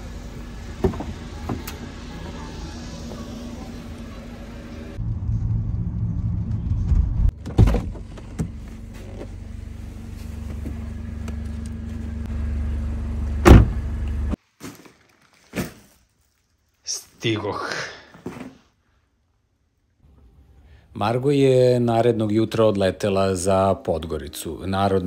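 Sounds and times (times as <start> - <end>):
car engine idling: 0.0 - 14.4
car door thumping shut: 0.8 - 1.7, 7.4 - 8.5, 13.4 - 13.8.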